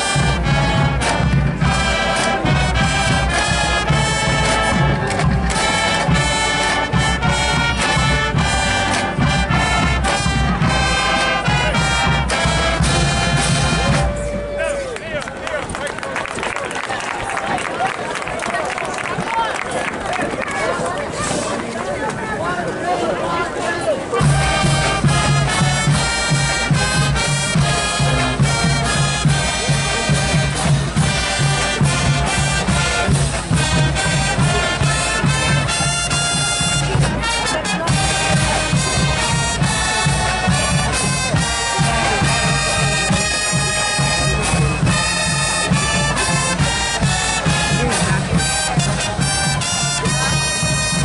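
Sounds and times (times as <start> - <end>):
bass drum beat: 0.0 - 14.6, 24.2 - 51.0
brass instruments: 0.0 - 15.2, 22.9 - 51.0.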